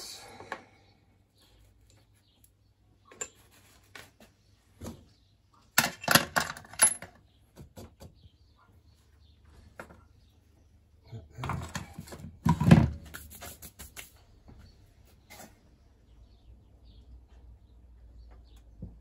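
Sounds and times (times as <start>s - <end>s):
metal parts clinking on workbench: 5.8s - 7.2s.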